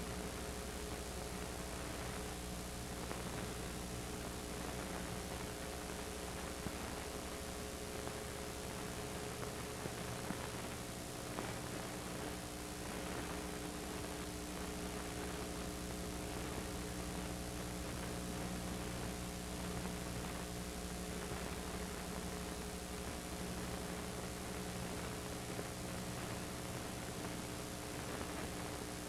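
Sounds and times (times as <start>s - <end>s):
steady hiss and electrical hum: 0.0s - 29.0s.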